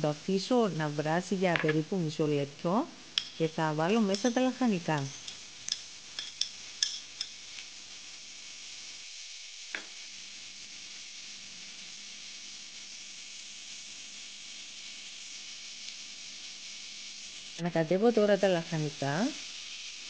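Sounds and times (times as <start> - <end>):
vegetables sizzling in a frying pan: 0.0 - 20.0
bowl clinking: 4.1 - 7.4.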